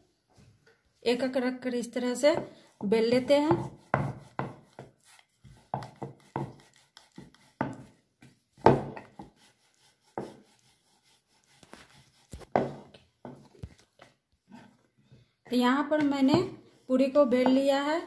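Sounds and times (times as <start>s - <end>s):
rolling pin rolling dough: 2.2s - 13.7s.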